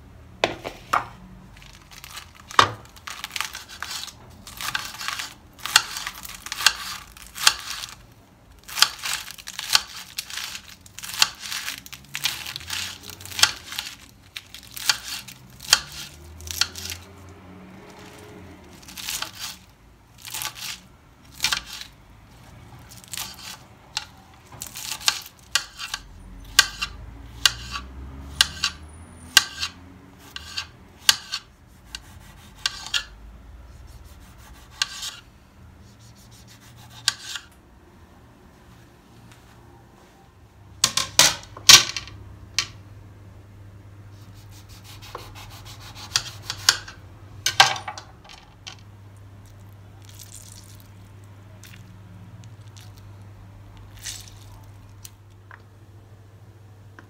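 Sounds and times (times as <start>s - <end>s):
knife slicing cucumber on board: 29.4s - 33.1s, 35.9s - 37.5s, 44.2s - 46.9s.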